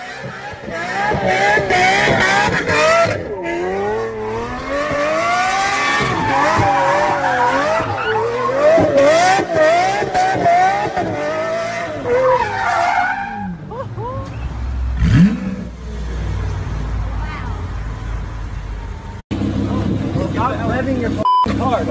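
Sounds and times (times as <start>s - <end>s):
car engine revving: 0.0s - 13.6s, 14.5s - 17.1s
tyres squealing: 5.7s - 9.0s.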